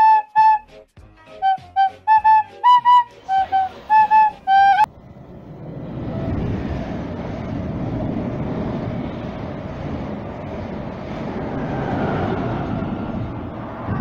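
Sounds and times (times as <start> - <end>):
flute-like melody: 0.0 - 4.9
train passing at speed: 3.2 - 14.0.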